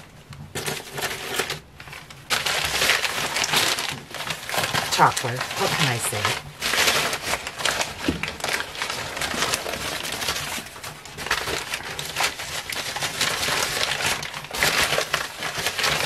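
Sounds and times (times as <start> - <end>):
newspaper crinkling and rustling: 0.0 - 16.0.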